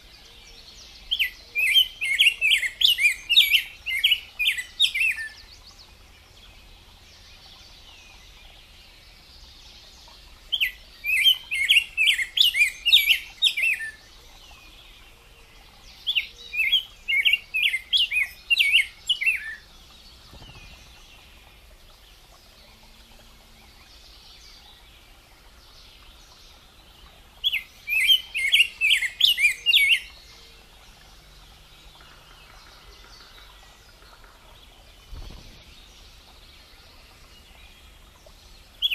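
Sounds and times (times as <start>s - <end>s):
bird singing whistled notes: 1.0s - 5.6s, 10.5s - 14.0s, 16.0s - 19.7s, 27.4s - 30.6s.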